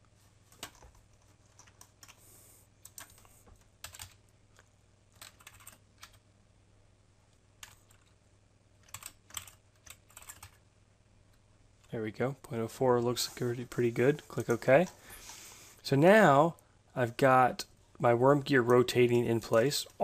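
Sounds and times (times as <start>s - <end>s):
faint keyboard keystrokes: 0.5s - 2.2s, 2.8s - 6.2s.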